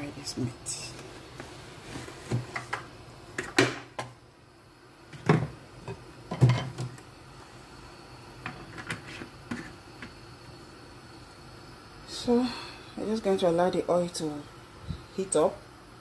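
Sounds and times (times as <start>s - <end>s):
cookware knocks and clunks: 6.3s - 6.9s.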